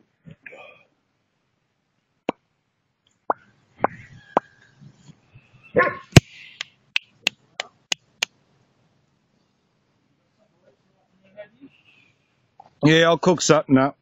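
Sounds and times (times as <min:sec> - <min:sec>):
dog barking and yapping: 0:05.7 - 0:06.2.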